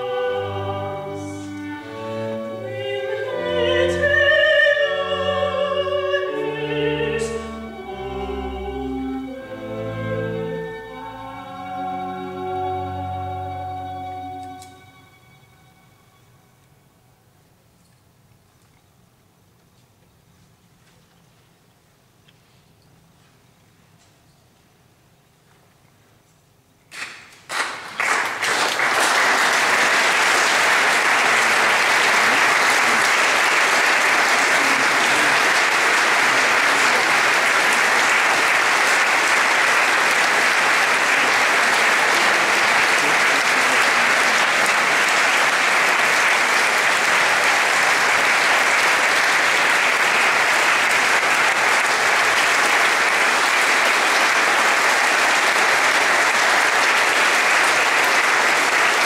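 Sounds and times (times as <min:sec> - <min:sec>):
audience applauding: 0:27.0 - 0:59.0.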